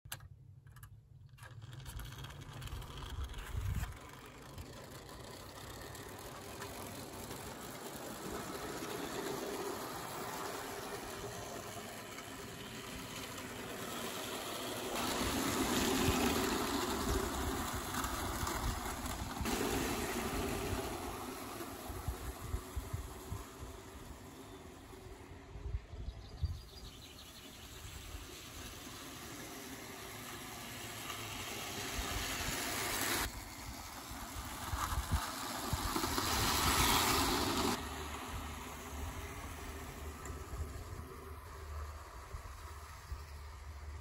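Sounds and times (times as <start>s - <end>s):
toy train wheels on rails: 0.1s - 25.6s, 26.6s - 44.0s
clockwork motor whirring: 1.4s - 25.4s, 27.2s - 44.0s
wind rumble on microphone: 2.6s - 4.1s.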